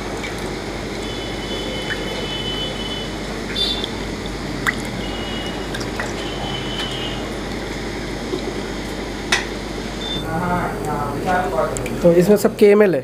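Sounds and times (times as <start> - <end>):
water splashing in plastic tub: 3.5 - 8.6.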